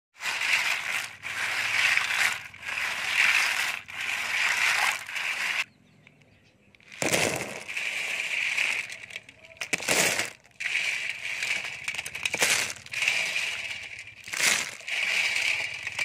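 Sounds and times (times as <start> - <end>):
snail shells clattering in steel bowl: 0.2 - 5.7, 6.8 - 16.0
water sloshing: 0.2 - 5.7.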